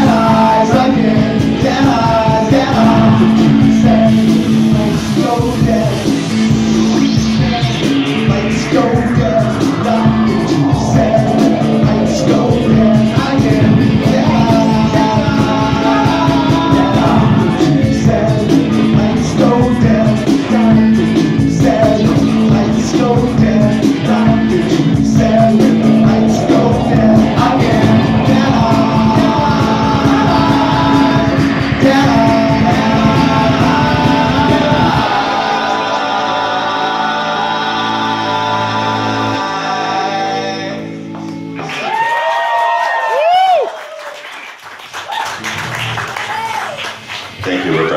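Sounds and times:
rock band playing: 0.0 - 39.3
sung vocals: 0.0 - 44.0.

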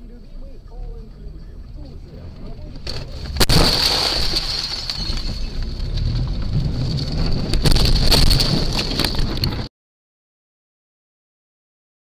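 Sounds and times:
road and engine rumble: 0.0 - 9.7
wind noise: 5.0 - 9.7.

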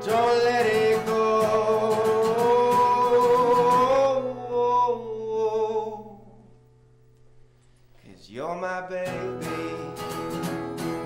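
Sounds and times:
man singing a held note: 0.0 - 6.6
acoustic guitar chord ringing: 0.0 - 11.0.

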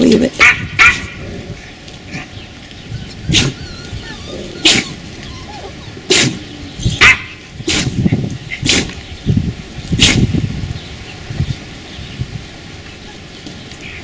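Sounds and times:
puppy barking: 0.4 - 1.1, 3.2 - 7.9.

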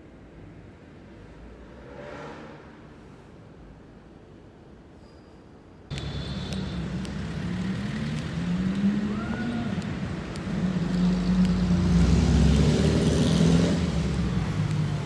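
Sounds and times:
vehicle engine running: 5.9 - 15.0.

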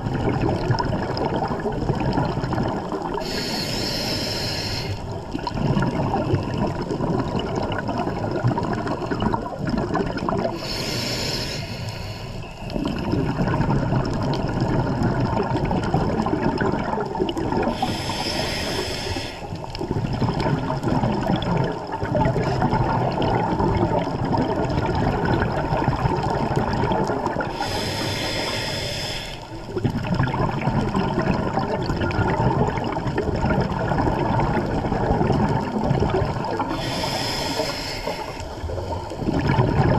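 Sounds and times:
bubbling exhalations: 0.0 - 11.5, 12.7 - 39.9
regulator hissing inhalations: 3.2 - 5.1, 10.5 - 12.7, 17.7 - 19.6, 27.5 - 29.6, 36.6 - 39.0.

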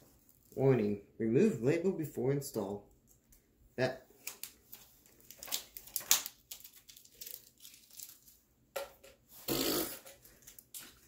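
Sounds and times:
plastic bags crinkling: 4.4 - 8.4.

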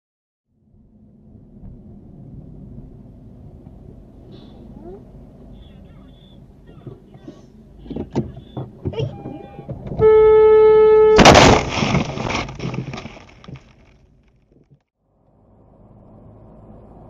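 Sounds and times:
car horn: 8.3 - 11.6
concrete slab crashing into car: 11.1 - 14.7.

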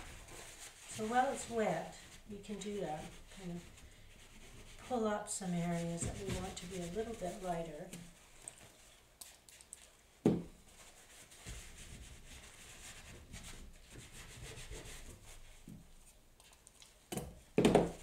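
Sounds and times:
paper towel scrubbing on paper: 0.0 - 9.0, 10.7 - 15.7.

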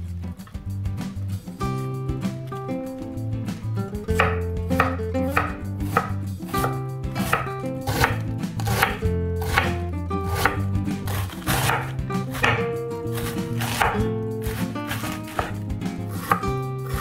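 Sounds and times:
knife slicing cabbage on board: 4.1 - 17.0.

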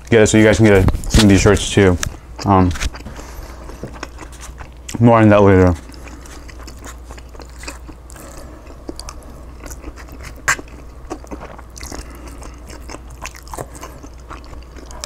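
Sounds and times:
steady low hum: 0.0 - 15.0
man chewing: 2.0 - 5.0, 5.6 - 15.0.

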